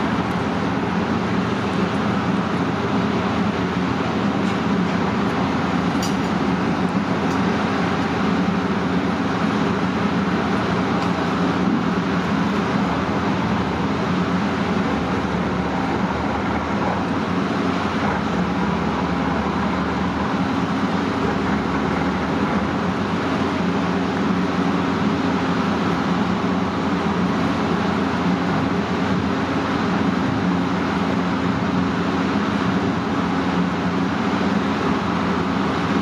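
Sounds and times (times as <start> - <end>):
boat engines droning: 0.0 - 36.0
water wash: 0.0 - 36.0.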